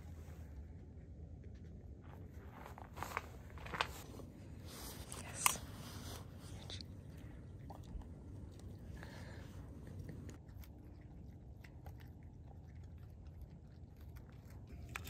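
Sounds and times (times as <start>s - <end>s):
dog crunching egg shell: 7.1s - 15.0s.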